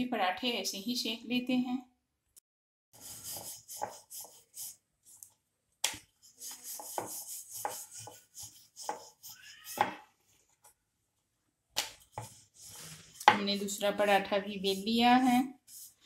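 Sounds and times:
rolling pin rolling dough on board: 6.4s - 10.1s.

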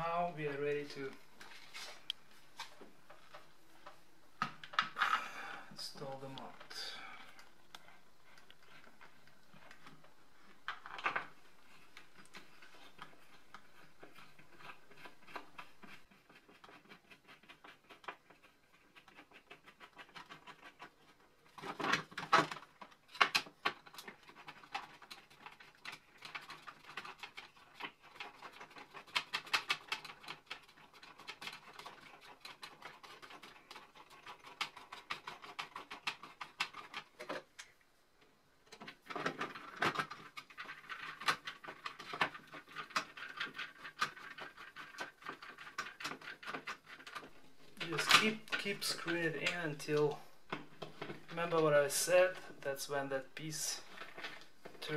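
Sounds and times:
faint steady hiss: 0.0s - 16.0s, 47.0s - 54.9s
small clicks taps and scratches: 6.0s - 52.6s, 53.8s - 54.9s.

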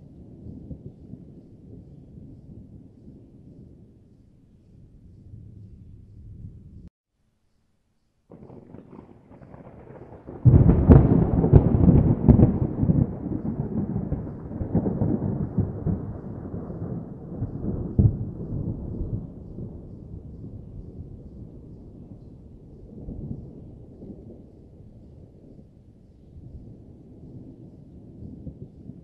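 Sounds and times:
thunder rumbling and cracking: 8.3s - 29.0s.

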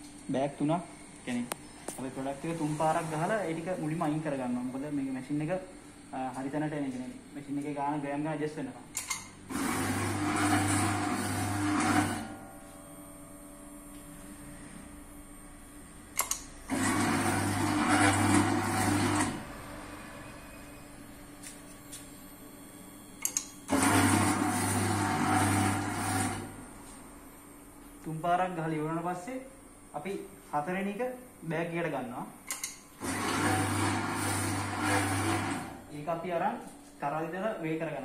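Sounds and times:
filling machine screw motor hum: 9.5s - 12.8s, 16.1s - 20.2s, 23.2s - 26.7s, 32.5s - 36.0s.

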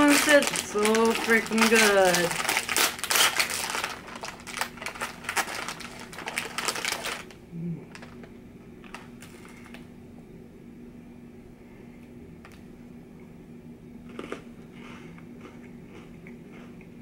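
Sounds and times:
plastic packaging crinkling: 0.0s - 9.8s.

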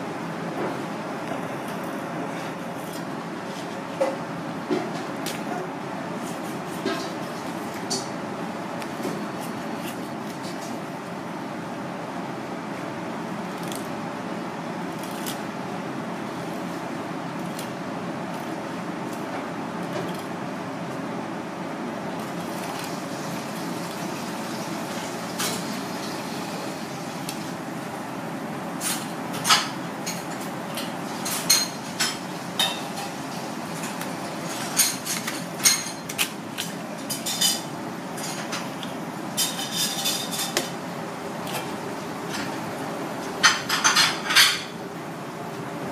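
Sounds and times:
steady background noise: 0.0s - 45.9s
knife scraping fish bones: 13.6s - 13.9s, 14.9s - 15.4s.

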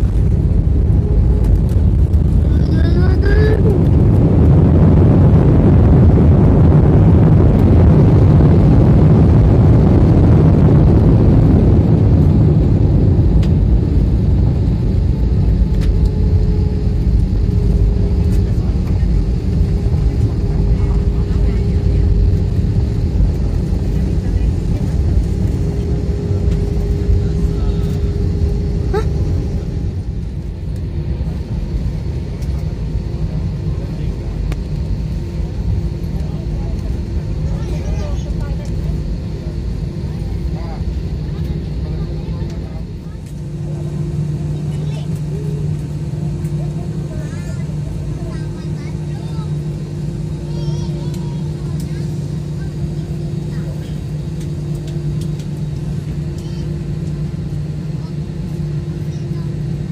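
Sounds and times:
aircraft cabin rumble: 0.0s - 59.9s
faint hum: 0.0s - 59.9s.

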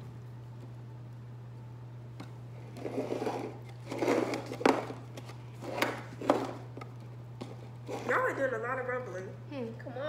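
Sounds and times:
cans clattering on a table: 3.1s - 5.0s, 5.6s - 6.6s.

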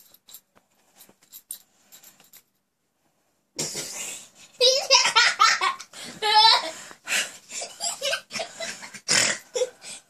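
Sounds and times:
people laughing and giggling: 7.5s - 9.0s.

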